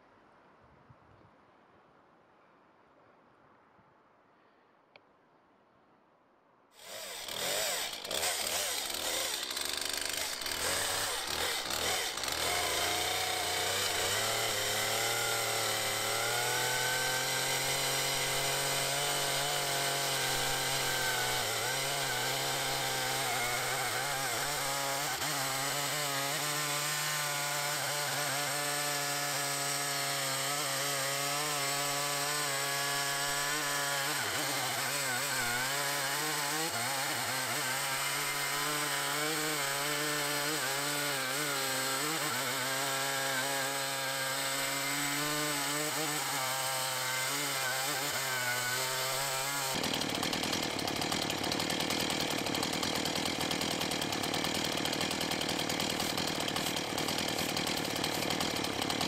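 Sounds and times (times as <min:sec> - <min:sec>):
chainsaw cutting through log: 0:06.8 - 0:59.0.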